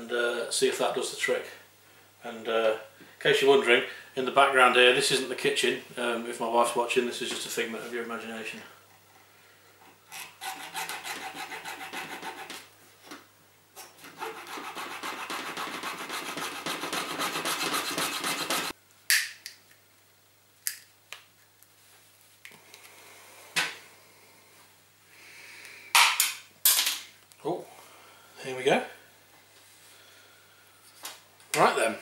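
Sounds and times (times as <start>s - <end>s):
hacksaw cutting plastic: 10.2s - 12.6s, 14.0s - 18.7s.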